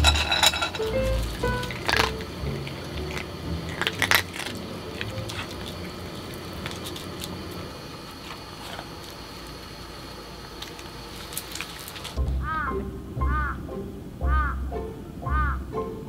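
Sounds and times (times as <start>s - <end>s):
clinks against metal cup: 0.0s - 1.0s
dog crunching dry food: 1.2s - 9.6s.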